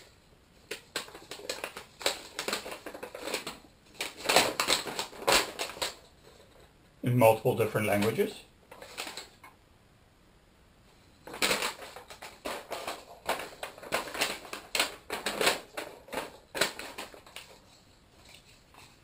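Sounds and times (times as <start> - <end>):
paper rustling and crinkling: 0.6 - 6.7, 11.2 - 19.0.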